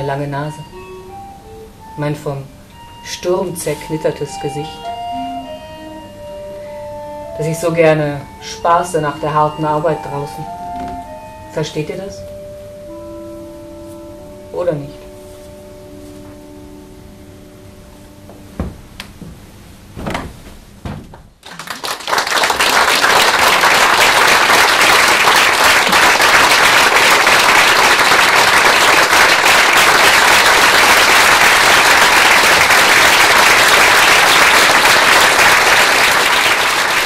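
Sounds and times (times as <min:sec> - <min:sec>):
held musical note: 0:00.4 - 0:18.6
soft knocks: 0:18.3 - 0:21.4
audience applauding: 0:21.4 - 0:37.0.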